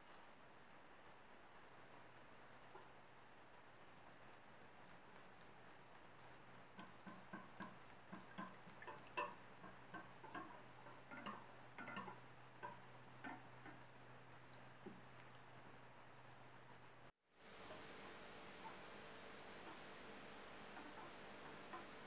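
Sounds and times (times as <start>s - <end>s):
whisk ticking against metal pan: 5.9s - 13.9s, 20.7s - 22.0s.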